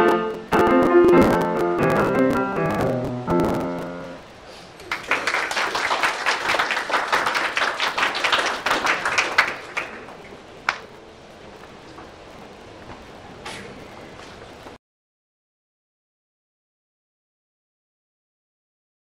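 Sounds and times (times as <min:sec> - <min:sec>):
piano chords ringing: 0:00.0 - 0:04.2
audience applauding: 0:04.8 - 0:10.9.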